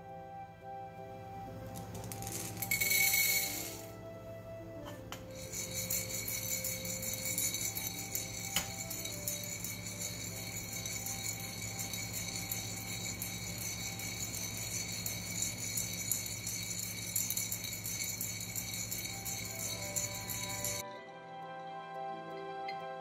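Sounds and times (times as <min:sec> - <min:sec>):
coffee beans rattling in roaster: 0:01.6 - 0:03.9, 0:05.1 - 0:20.8.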